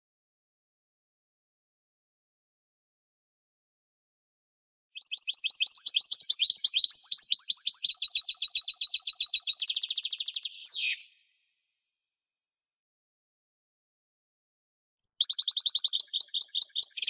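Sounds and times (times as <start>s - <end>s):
goldfinch singing: 5.0s - 11.1s, 15.2s - 17.0s.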